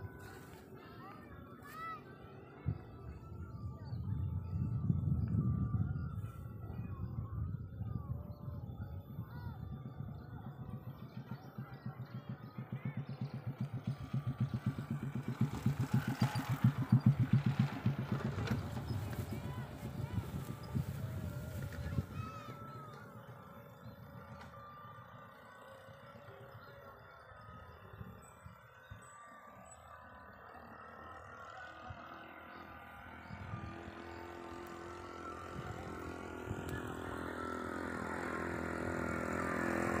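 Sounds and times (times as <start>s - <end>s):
small engine putting: 11.1s - 40.0s.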